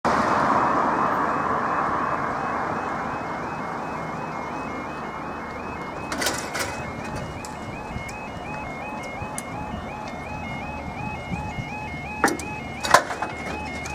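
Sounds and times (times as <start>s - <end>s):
road traffic noise: 0.0s - 13.9s
two-tone warning alarm warbling: 0.5s - 13.9s
metallic clatters of barrier stands: 6.0s - 8.2s, 12.2s - 13.9s.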